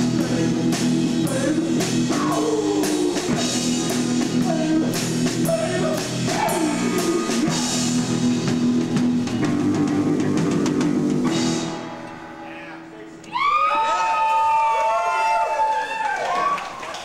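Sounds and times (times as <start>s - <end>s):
drum kit with cymbal hits: 0.0s - 13.4s.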